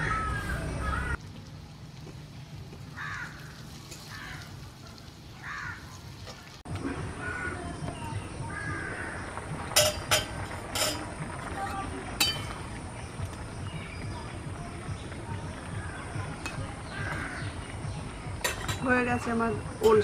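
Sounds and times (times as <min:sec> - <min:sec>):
crow cawing: 0:02.9 - 0:04.6, 0:05.4 - 0:05.9, 0:07.2 - 0:07.7, 0:08.5 - 0:09.3, 0:16.9 - 0:17.5
small birds chirping faintly: 0:11.3 - 0:20.0.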